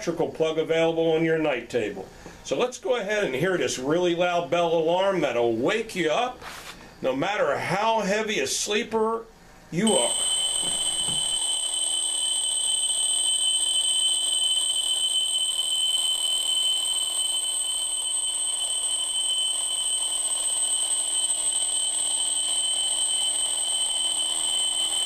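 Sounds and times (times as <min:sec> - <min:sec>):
alarm clock bell ringing: 0:09.9 - 0:25.0.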